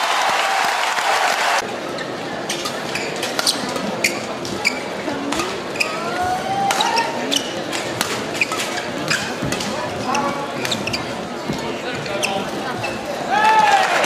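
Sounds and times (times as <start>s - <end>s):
applause: 0.0s - 1.6s, 13.7s - 14.0s
shoes squeaking on floor: 1.9s - 13.3s
racket hitting shuttlecock: 7.7s - 9.8s.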